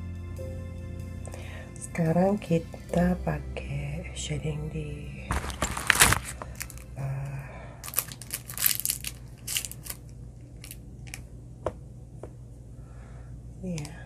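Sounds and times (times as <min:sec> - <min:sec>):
rustling and scraping: 0:05.3 - 0:06.9.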